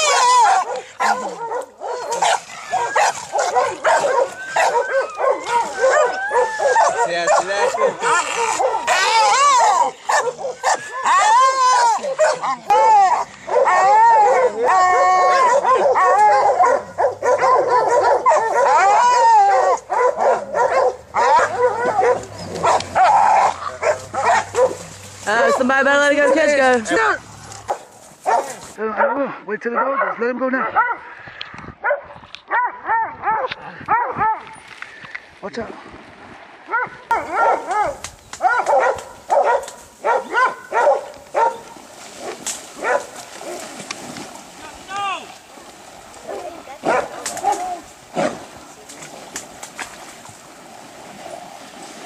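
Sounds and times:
dogs barking and yelping: 0.0s - 25.6s, 27.6s - 29.2s, 29.8s - 31.1s, 31.8s - 34.6s, 36.7s - 43.7s, 46.2s - 47.9s.

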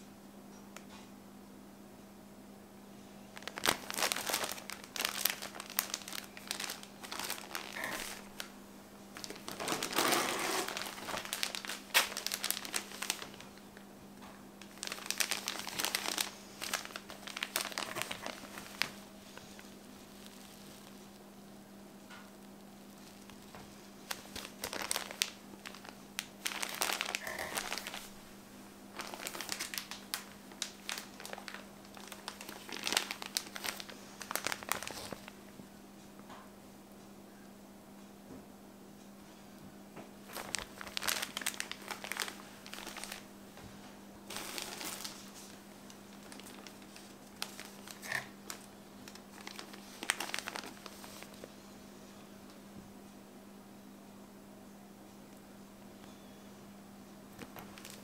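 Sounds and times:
plastic bags crinkling: 3.3s - 8.5s, 9.1s - 13.9s, 14.6s - 21.2s, 22.5s - 28.2s, 28.9s - 35.4s, 40.2s - 43.4s, 44.3s - 51.5s, 57.3s - 58.0s.

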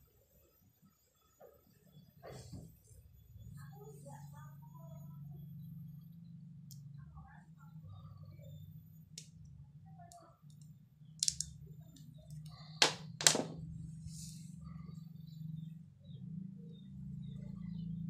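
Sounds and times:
low steady hum: 2.0s - 18.0s
metallic clicks of small parts: 10.1s - 11.6s.

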